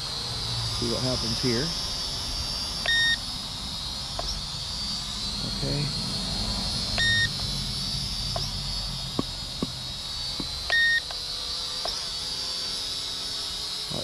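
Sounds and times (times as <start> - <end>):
drone propellers whining: 0.0 - 14.0
short electronic beep: 7.0 - 7.3.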